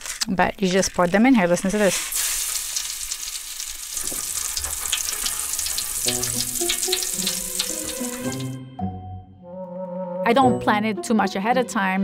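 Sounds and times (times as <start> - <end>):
popping candy crackling in a pan: 0.0 - 8.5
background music with low notes: 6.0 - 12.0.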